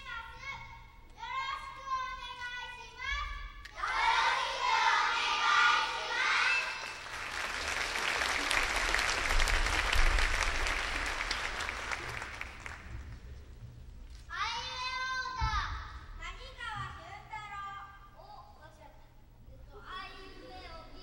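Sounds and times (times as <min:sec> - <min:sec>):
children reciting in unison: 0:03.7 - 0:07.0
audience applause: 0:06.4 - 0:13.2.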